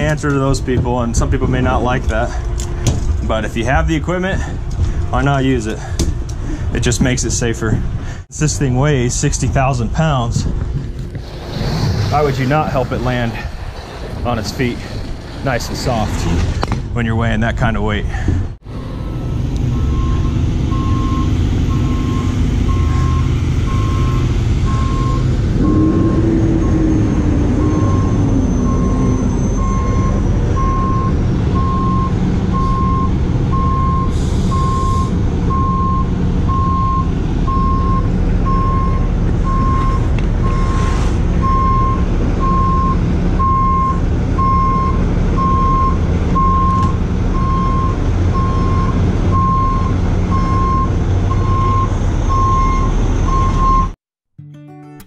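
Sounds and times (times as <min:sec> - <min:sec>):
diesel truck engine running: 0:00.0 - 0:54.0
truck backup alarm beeping: 0:19.6 - 0:54.0.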